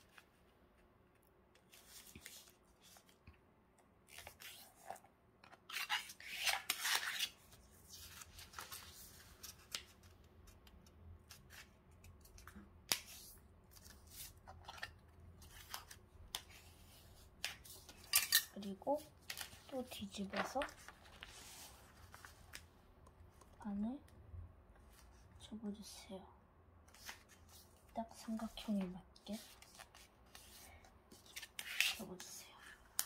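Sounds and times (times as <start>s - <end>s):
paper rustling as folded: 1.6s - 3.3s, 5.7s - 10.2s, 11.2s - 22.7s, 26.9s - 32.3s.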